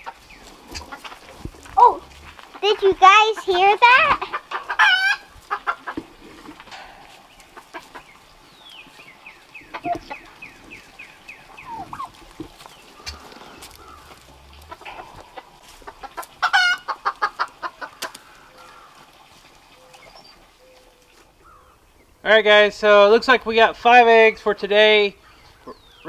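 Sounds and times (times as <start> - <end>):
turkey gobbling: 0.0 - 20.7
turkey drumming hum: 0.0 - 22.1
turkeys clucking: 0.0 - 22.1, 25.2 - 26.0.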